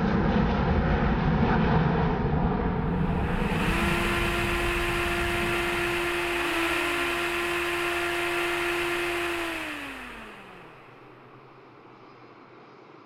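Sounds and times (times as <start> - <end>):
aircraft engine whine: 0.0 - 12.6
rushing noise: 2.8 - 7.8.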